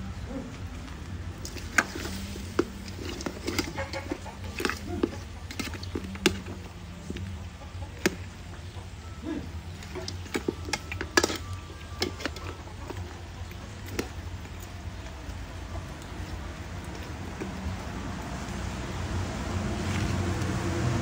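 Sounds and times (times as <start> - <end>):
metal ladle stirring in pot: 1.4 - 8.8, 9.5 - 18.5
metal scraping on metal: 9.7 - 13.2.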